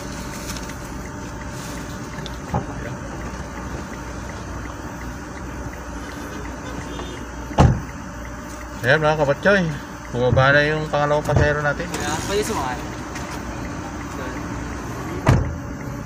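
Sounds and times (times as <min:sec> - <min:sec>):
car engine rumble: 0:00.0 - 0:16.0
car door shutting: 0:06.8 - 0:07.9, 0:11.2 - 0:13.5, 0:15.0 - 0:15.7.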